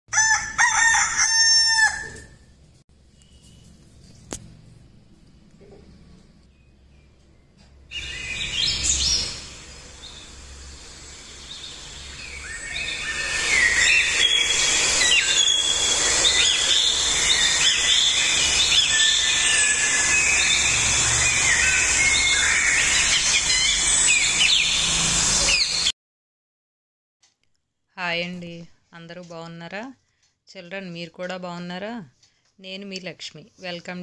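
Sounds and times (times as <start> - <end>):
many birds chirping: 7.9 - 10.4, 11.3 - 25.9
steady high hiss: 8.0 - 25.9.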